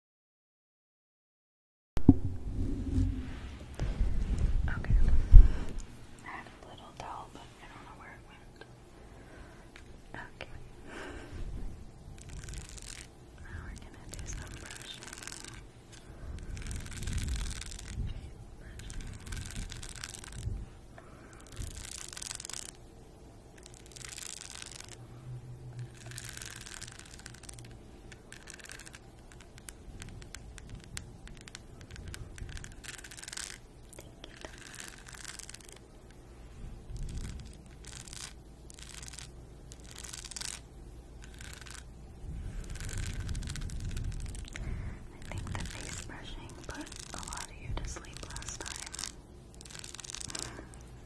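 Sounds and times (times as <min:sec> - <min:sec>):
fingernails scratching brush holder: 0:12.2 - 0:13.1, 0:13.7 - 0:18.1, 0:18.7 - 0:20.6, 0:21.4 - 0:22.8, 0:25.8 - 0:35.8, 0:36.9 - 0:40.6.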